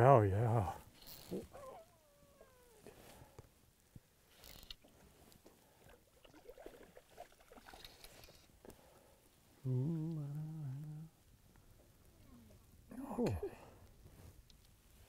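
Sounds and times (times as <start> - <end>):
faint rustles: 0.6 - 6.0, 7.6 - 15.0
faint clicks: 13.8 - 14.8.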